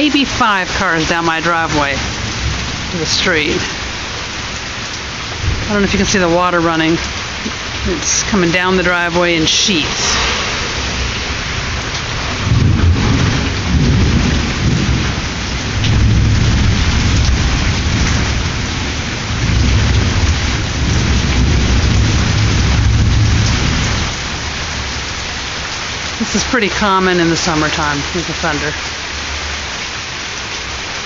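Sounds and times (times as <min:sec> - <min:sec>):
heavy rain pouring: 0:00.0 - 0:31.0
thunder rumbling: 0:05.2 - 0:28.5.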